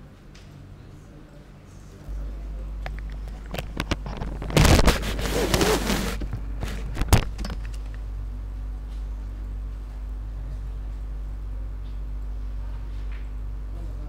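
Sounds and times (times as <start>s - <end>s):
low steady hum: 0.0s - 14.0s
rustling noise: 3.4s - 7.3s.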